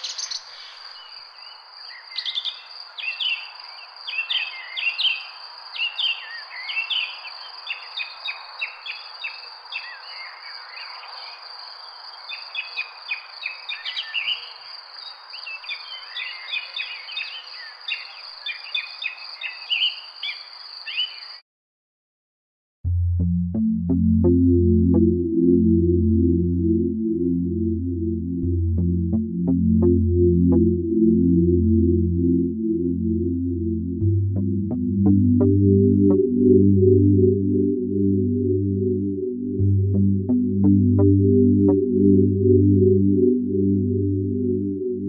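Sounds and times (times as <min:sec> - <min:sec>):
small birds chirping: 0:00.0 - 0:21.4.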